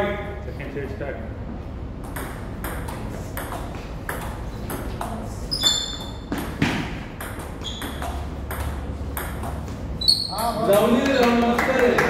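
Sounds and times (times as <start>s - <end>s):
short high-pitched squeaks: 5.5s - 6.2s, 10.0s - 10.5s.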